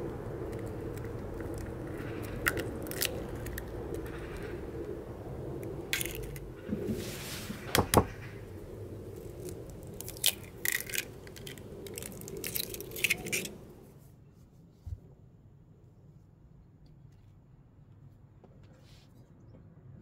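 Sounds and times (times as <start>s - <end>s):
egg shell crackling: 0.0s - 6.7s, 7.6s - 13.8s.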